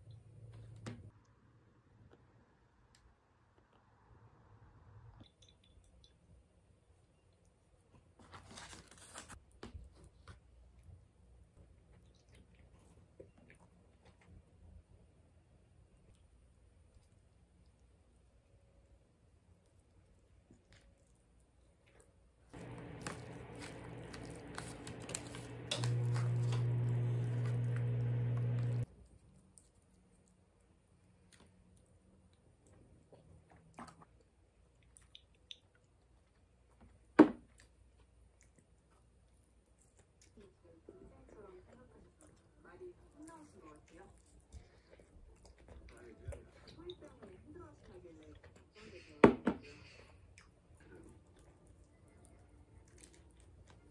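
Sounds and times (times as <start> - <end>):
low electrical hum: 10.7 - 33.1
pizza slice rustling: 22.6 - 28.6.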